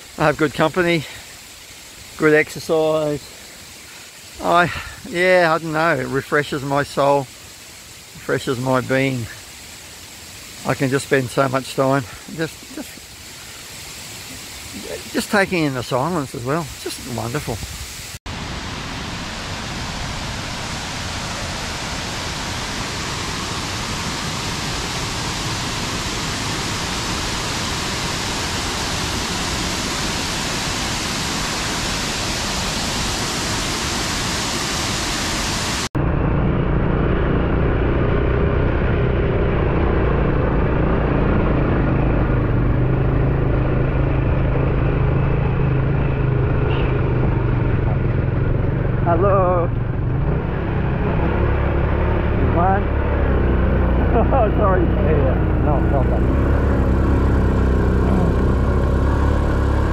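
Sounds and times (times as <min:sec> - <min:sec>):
waterfall roaring: 0:00.0 - 0:35.9, 0:37.3 - 0:59.9
low engine hum: 0:35.9 - 0:59.9.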